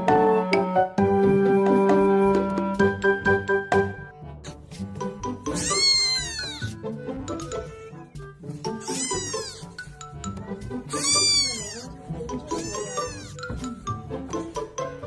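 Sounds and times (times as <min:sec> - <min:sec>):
background music: 0:00.0 - 0:15.0
kitten meowing: 0:05.5 - 0:06.8, 0:08.8 - 0:09.7, 0:10.9 - 0:11.9, 0:12.5 - 0:13.4.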